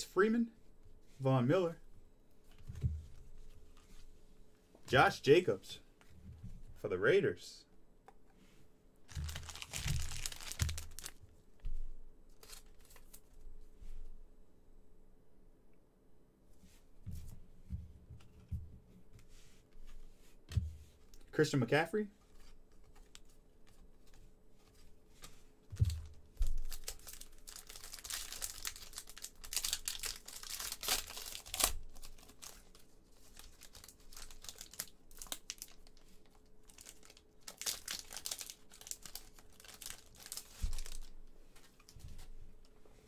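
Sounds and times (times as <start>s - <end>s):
plastic wrapper tearing and crinkling: 9.1s - 11.2s, 12.4s - 13.2s, 25.8s - 41.1s.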